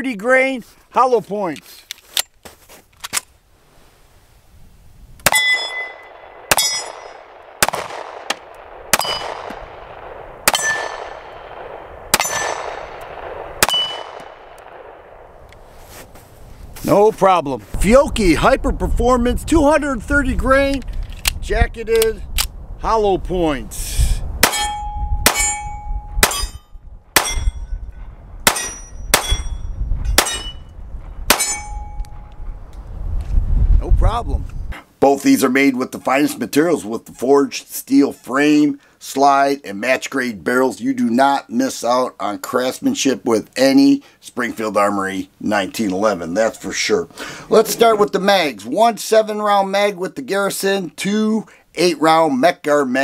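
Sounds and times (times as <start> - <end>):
pistol shots: 5.2 - 15.2, 24.4 - 27.6, 28.4 - 29.6, 30.2 - 30.6, 31.3 - 31.8
steel target ringing: 5.3 - 7.3, 8.9 - 9.5, 10.5 - 11.3, 12.2 - 12.8, 13.6 - 14.2, 24.4 - 30.7, 31.3 - 32.2
ringing tone: 24.6 - 28.0.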